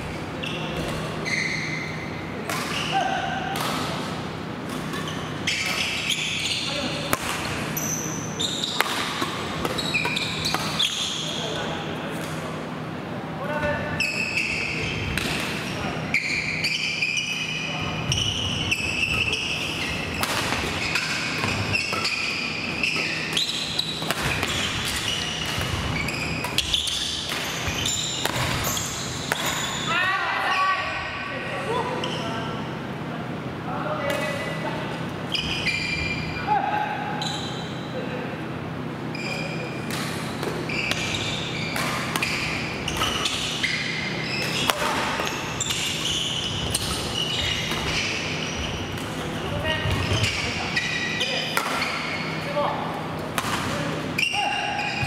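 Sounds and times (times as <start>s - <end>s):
shoes squeaking on gym floor: 0.4s - 3.0s, 4.8s - 7.0s, 7.7s - 11.8s, 13.9s - 30.0s, 35.3s - 36.4s, 37.2s - 37.9s, 39.1s - 53.2s, 54.0s - 55.0s
rackets striking shuttlecock: 3.5s - 4.0s, 8.6s - 11.0s, 20.1s - 29.6s, 53.2s - 53.8s.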